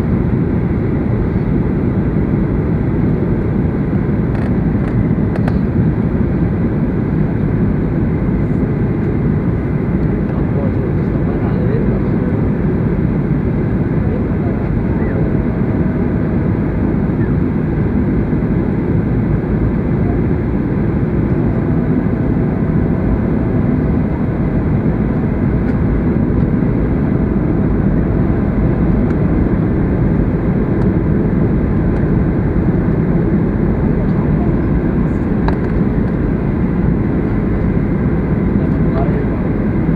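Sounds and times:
airplane cabin rumble: 0.0s - 39.9s.

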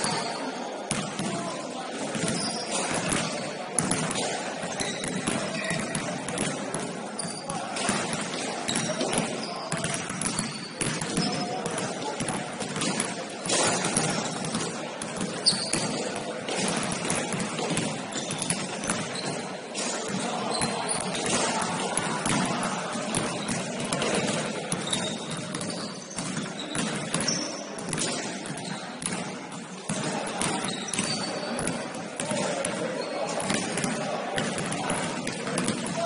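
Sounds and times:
basketball bouncing on court: 0.0s - 36.0s
din of players and onlookers: 0.0s - 36.0s
sneakers squeaking: 0.0s - 36.0s.

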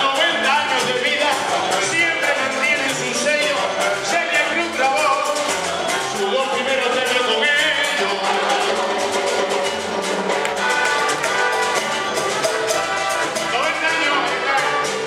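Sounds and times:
man singing: 0.0s - 9.6s, 13.4s - 15.0s
live band playing: 0.0s - 15.0s
steady percussion beat: 0.0s - 15.0s.

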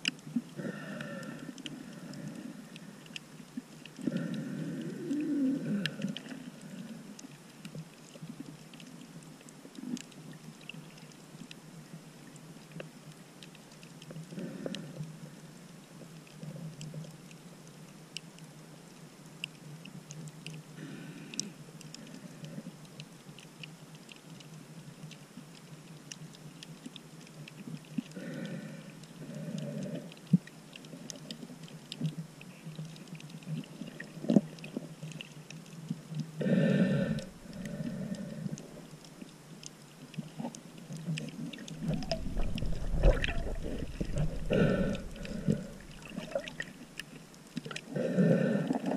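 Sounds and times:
faint underwater clicks: 0.0s - 48.9s
muffled underwater hiss: 0.0s - 48.9s
muffled underwater whooshes: 41.7s - 46.7s.

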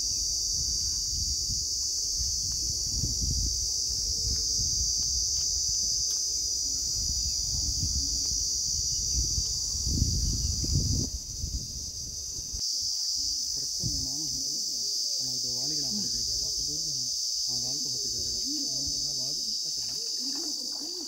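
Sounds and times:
insects droning: 0.0s - 21.0s.

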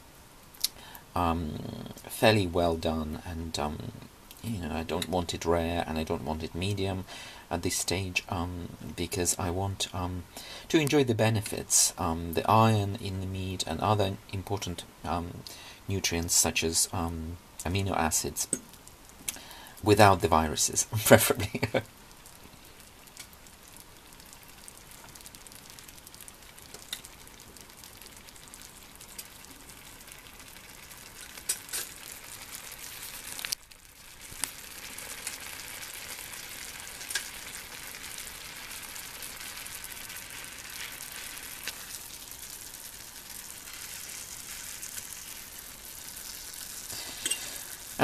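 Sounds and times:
steak sizzling in a pan: 22.0s - 48.0s.

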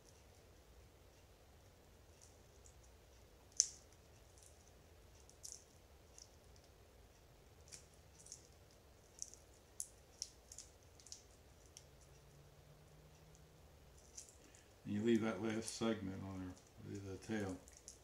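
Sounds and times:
shrimp shell clicks and crackles: 3.5s - 6.8s, 7.6s - 12.1s, 13.3s - 14.6s, 16.5s - 18.0s.

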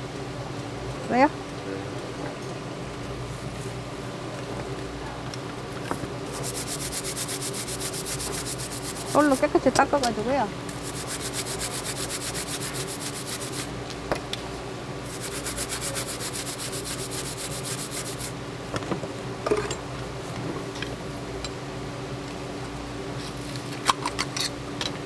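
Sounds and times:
brush scrubbing shells: 6.3s - 9.5s, 10.7s - 13.7s, 15.0s - 18.3s.

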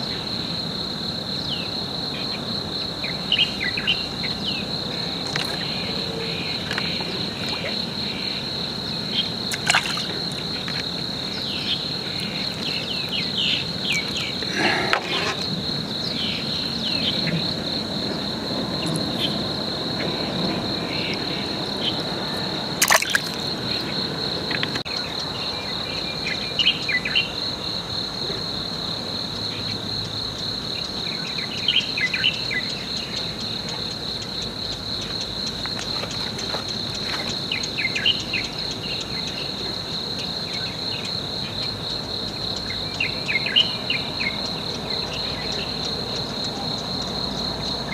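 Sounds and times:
insects trilling: 0.0s - 47.9s
short insect chirps: 3.3s - 17.5s, 21.8s - 24.8s.

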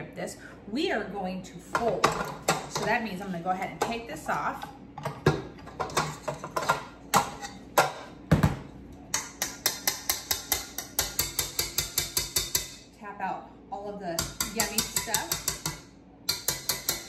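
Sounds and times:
whisk and metal bowl clanking: 9.1s - 12.8s, 14.2s - 17.0s.

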